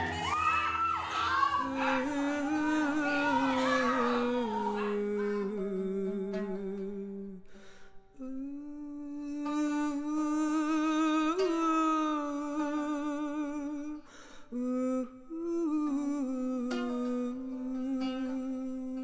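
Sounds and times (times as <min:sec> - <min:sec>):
person humming a slow melody: 0:01.6 - 0:19.0
person breathing in: 0:07.5 - 0:08.1, 0:14.0 - 0:14.6.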